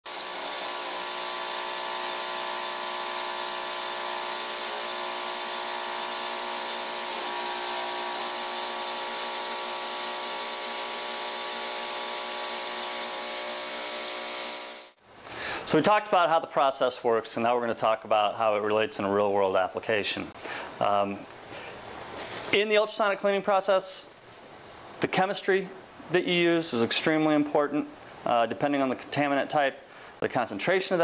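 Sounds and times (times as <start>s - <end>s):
ultrasonic cleaner hiss: 0.0s - 15.0s.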